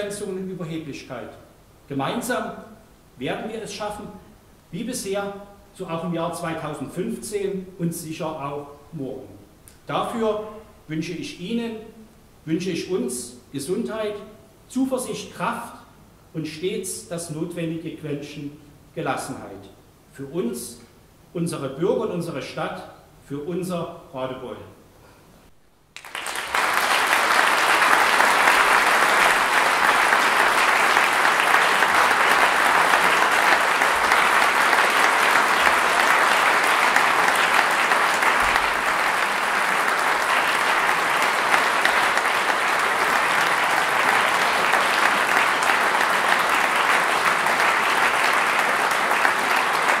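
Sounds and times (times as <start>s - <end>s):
audience applauding: 26.0s - 50.0s.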